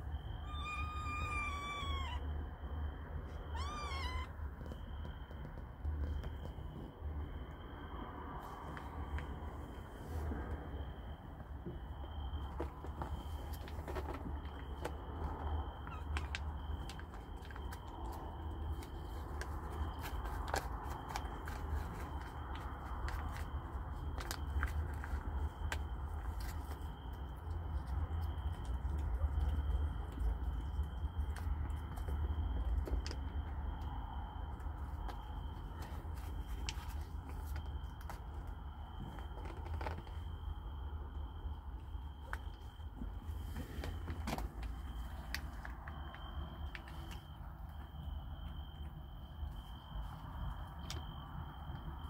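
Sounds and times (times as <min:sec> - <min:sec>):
kitten chewing and licking: 0:16.8 - 0:33.4.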